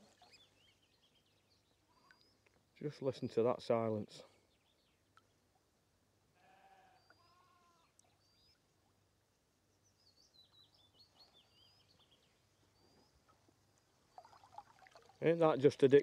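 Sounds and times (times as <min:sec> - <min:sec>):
bird chirping: 0:00.0 - 0:02.5, 0:06.9 - 0:08.6, 0:09.7 - 0:13.4
sheep bleating faintly: 0:06.4 - 0:07.9.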